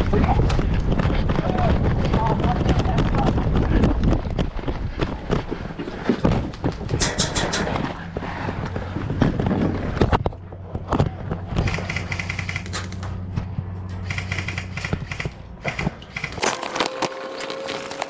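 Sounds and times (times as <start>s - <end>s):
footsteps on dirt: 0.0s - 18.0s
knocks and crackles: 0.0s - 18.0s
airsoft guns firing bursts: 14.0s - 16.4s.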